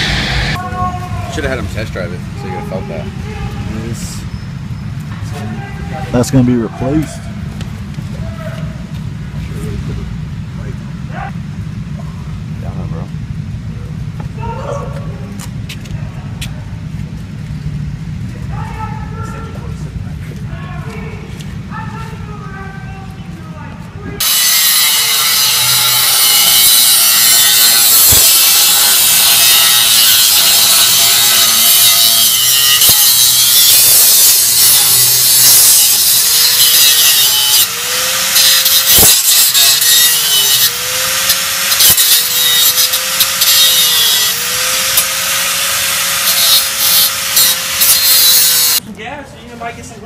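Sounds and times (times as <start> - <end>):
grinder cutting metal pipe: 24.2 - 48.8.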